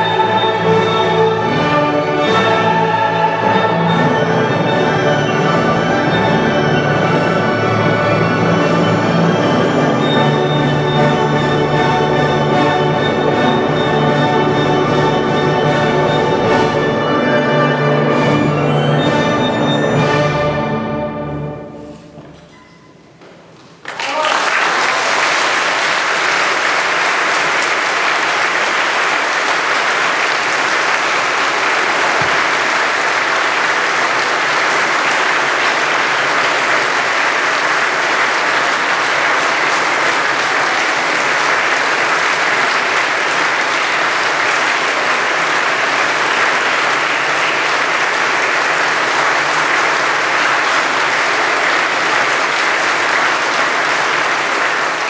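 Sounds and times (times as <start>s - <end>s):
audience applauding: 23.7s - 55.0s.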